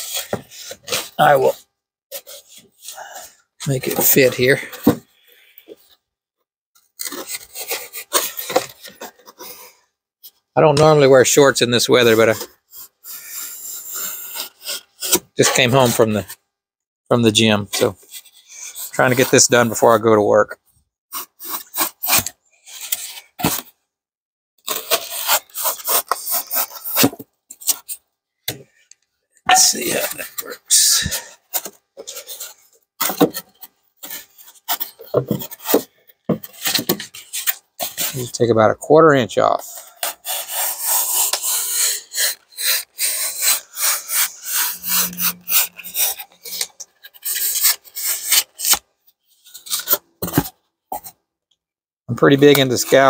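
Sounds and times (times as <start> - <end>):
foam board rasping: 7.0 - 9.6, 12.1 - 16.1, 21.1 - 23.7, 24.7 - 28.0, 39.8 - 48.8
brief scrape: 29.5 - 33.4, 39.7 - 48.8.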